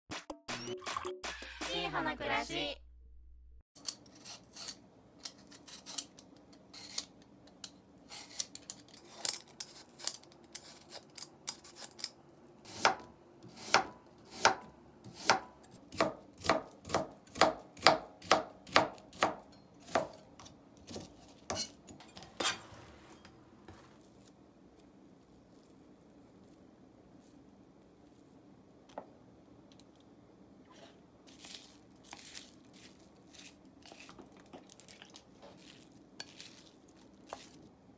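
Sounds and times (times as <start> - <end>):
knife chopping on cutting board: 12.7 - 21.7.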